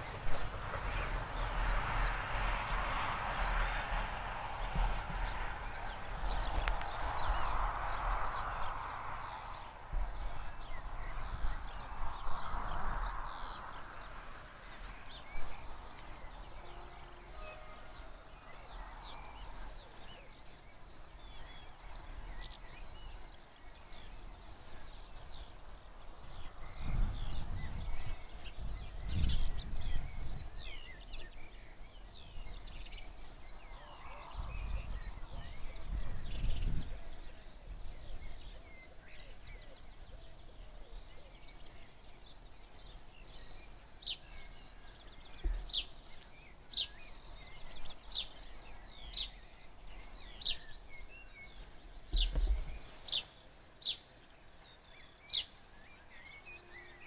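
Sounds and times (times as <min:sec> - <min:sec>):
wind gusts on microphone: 0:00.0 - 0:56.2
small birds chirping and singing: 0:00.0 - 0:57.0.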